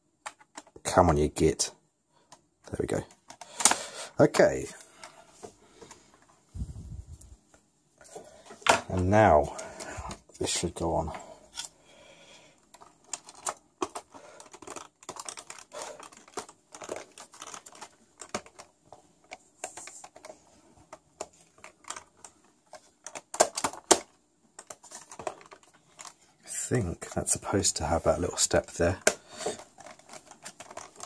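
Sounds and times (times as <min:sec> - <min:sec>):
plastic cover clicks and scrapes: 0:02.3 - 0:04.0, 0:12.6 - 0:27.2, 0:28.4 - 0:31.0.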